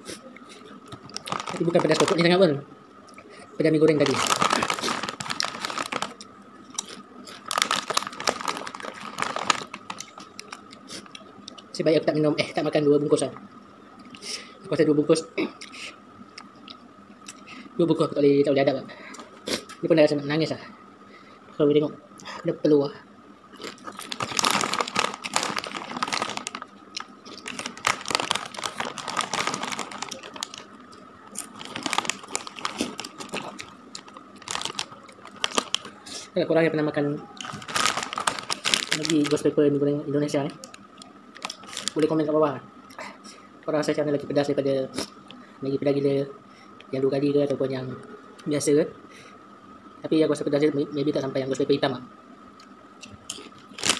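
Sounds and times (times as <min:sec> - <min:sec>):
chips being chewed: 0:00.9 - 0:02.3, 0:04.0 - 0:11.7, 0:23.5 - 0:36.2, 0:37.4 - 0:39.4, 0:53.2 - 0:53.9
foil bag crinkling: 0:01.1 - 0:02.4, 0:03.8 - 0:11.1, 0:23.6 - 0:36.2, 0:37.4 - 0:39.5, 0:41.4 - 0:42.1, 0:53.4 - 0:53.9.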